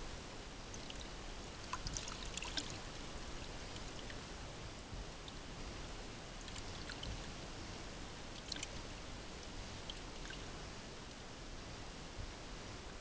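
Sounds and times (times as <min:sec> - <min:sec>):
faint high whine: 0:00.0 - 0:13.0
faint ticks: 0:00.7 - 0:01.1.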